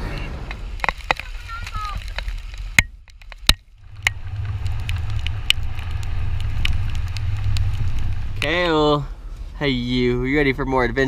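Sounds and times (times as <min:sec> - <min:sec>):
wind and road noise: 0:00.0 - 0:11.0
sharp ticks: 0:00.8 - 0:08.6.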